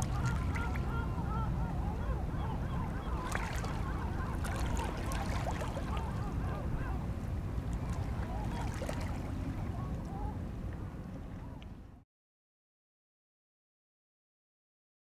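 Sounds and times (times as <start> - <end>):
water splashing against rocks: 0.0 - 0.8, 4.4 - 6.0
rumble of wind and water: 0.0 - 12.0.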